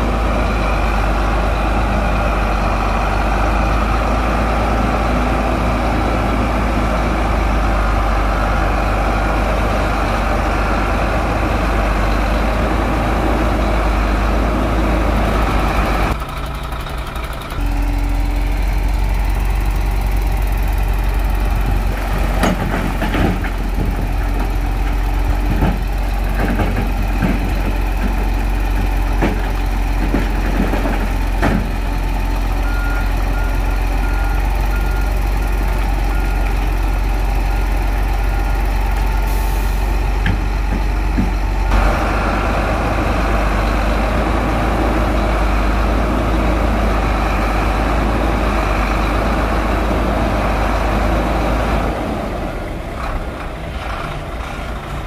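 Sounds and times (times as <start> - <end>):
diesel engine humming: 0.0 - 55.0
sharp clanks and knocks: 21.7 - 31.8.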